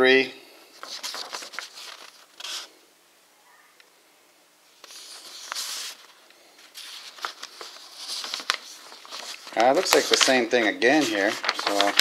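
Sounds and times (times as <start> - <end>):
paper booklet rustling: 0.6 - 2.7, 4.8 - 12.0.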